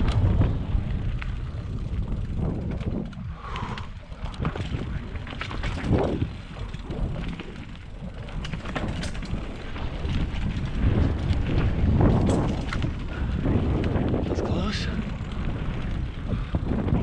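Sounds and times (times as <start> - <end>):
bike clattering over bumps: 0.0 - 17.0
wind buffeting microphone: 0.0 - 17.0
tyres rumbling on dirt: 4.1 - 17.0.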